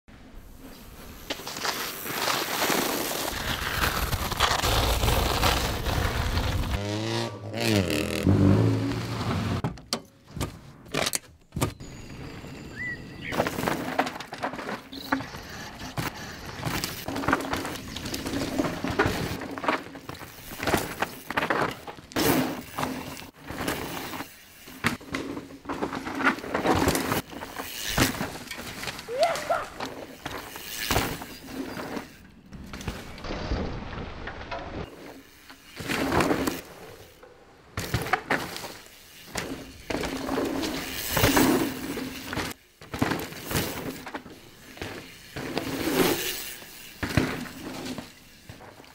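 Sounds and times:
tyres on gravel: 0.5s - 6.8s, 10.2s - 48.9s
tyres skidding on dirt: 0.5s - 9.6s, 11.8s - 48.9s
bike knocks and rattles: 7.6s - 12.0s, 13.3s - 48.9s.

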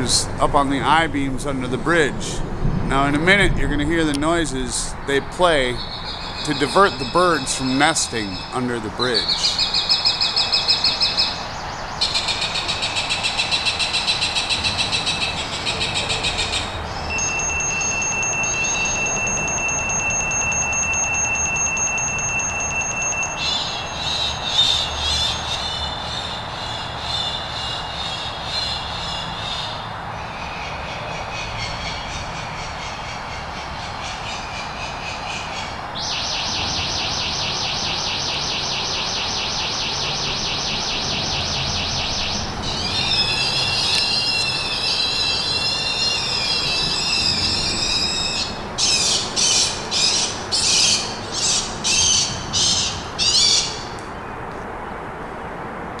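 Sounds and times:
bird sounds from loudspeakers: 0.0s - 54.0s
steady background noise: 0.0s - 56.0s
electronic noises: 2.9s - 9.6s.

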